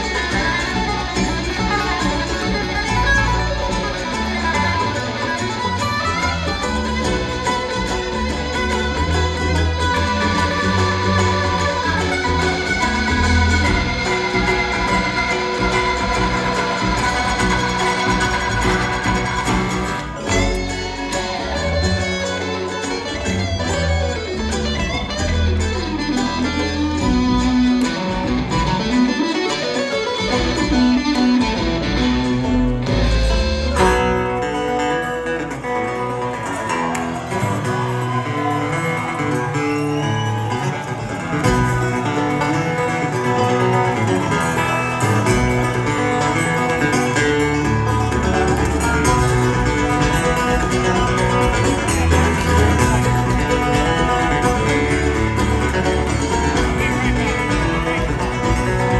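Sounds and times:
bluegrass band playing: 0.0 - 58.9.

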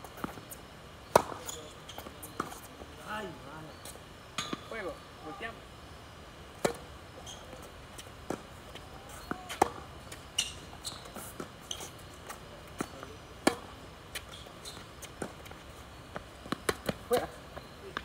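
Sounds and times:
tennis ball bouncing: 0.1 - 2.6, 4.4 - 4.8, 6.6 - 18.0
racket hitting tennis ball: 1.1 - 2.6, 6.6 - 6.9, 8.2 - 18.0.

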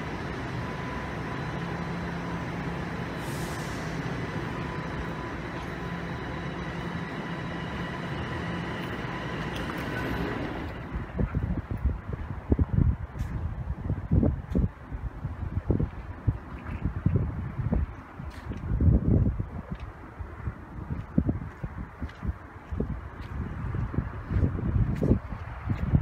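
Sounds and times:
faint steady tones: 0.0 - 11.2
machinery hum: 0.0 - 13.6
wind buffeting microphone: 0.0 - 26.0
brief hiss: 3.2 - 4.0.

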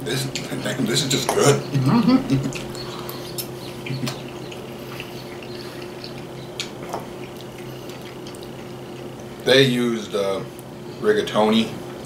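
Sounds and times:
steady low hum: 0.0 - 12.0
wet chewing sounds: 0.3 - 9.5.

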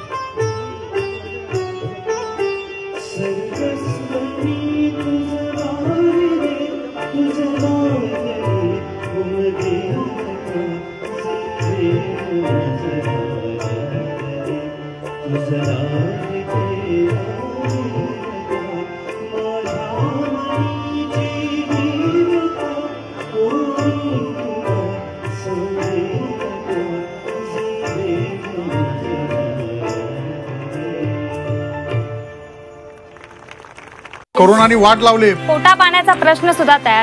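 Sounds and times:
harmonium: 0.0 - 37.0
man singing: 2.9 - 32.1.

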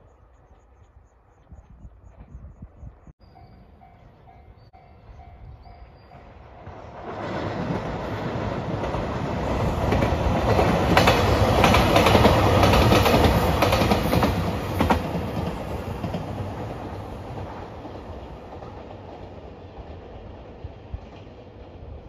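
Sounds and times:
diesel train passing: 3.2 - 22.0
train wheels clicking over rail joints: 8.8 - 20.0.

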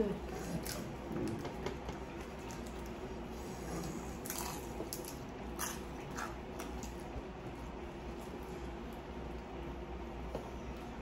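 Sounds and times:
chewing crispy food: 2.1 - 9.1.

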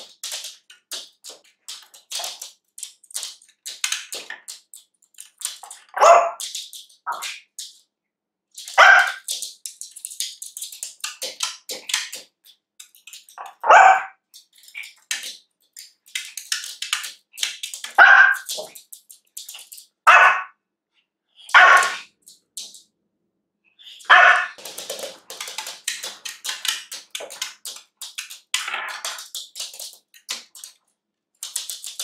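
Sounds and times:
claws clicking and scratching: 0.0 - 7.9, 8.6 - 20.0, 21.5 - 22.8, 24.0 - 30.8, 31.4 - 32.0
puppy barking: 5.9 - 6.4, 8.8 - 9.3, 13.4 - 14.2, 18.0 - 18.5, 20.1 - 20.6, 21.5 - 22.1, 24.0 - 24.6.

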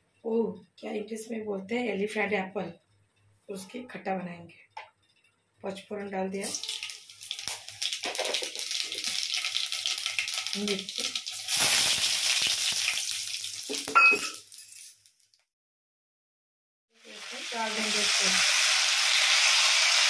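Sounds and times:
seeds crackling and sizzling in oil: 6.4 - 15.4, 17.0 - 20.0.

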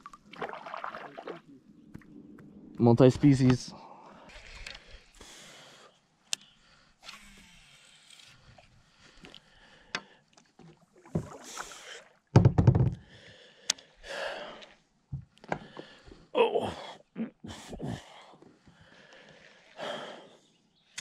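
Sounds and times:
water swishing: 0.0 - 2.2, 10.4 - 12.3
clicks and knocks in kayak: 12.3 - 13.1, 15.1 - 16.0.

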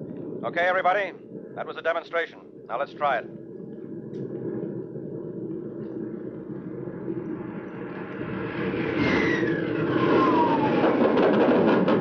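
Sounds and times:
aircraft engine drone: 0.0 - 12.0
falling whistle: 8.9 - 11.2.

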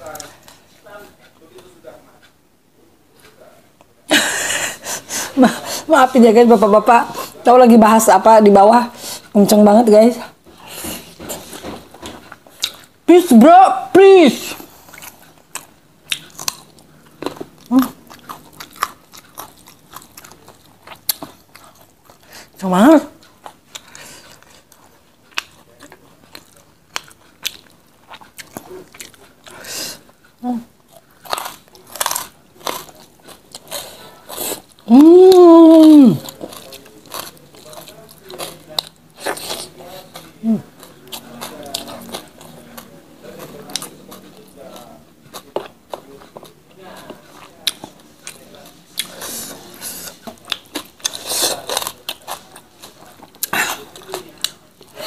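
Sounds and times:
eating and chewing: 0.0 - 2.4, 3.1 - 13.4, 14.4 - 55.0
crunchy bites and chewing: 31.0 - 34.7.

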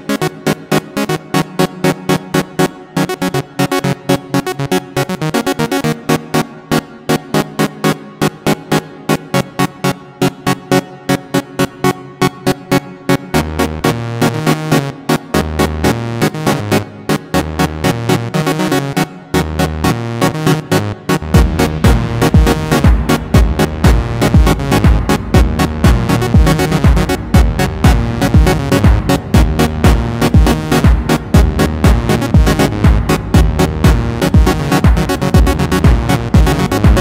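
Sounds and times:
synthesizer and keyboard chords: 0.0 - 37.0
synth bass line: 13.2 - 37.0
fast ticking beat: 13.4 - 37.0.

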